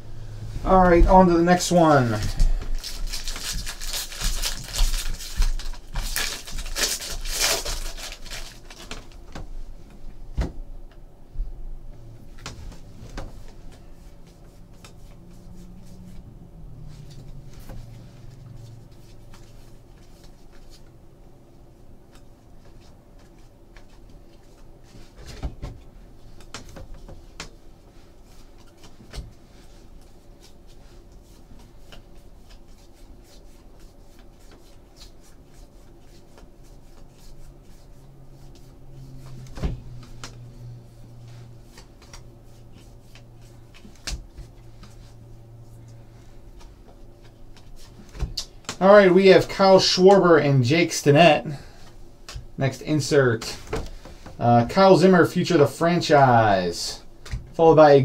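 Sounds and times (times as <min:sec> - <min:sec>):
cards rustling and flicking: 0:01.9 - 0:09.4, 0:26.3 - 0:49.0
foil pack crinkling: 0:02.4 - 0:09.2.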